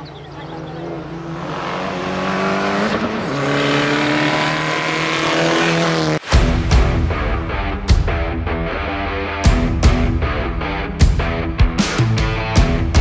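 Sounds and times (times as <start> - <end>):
rally car engine at full throttle: 0.1 - 7.6.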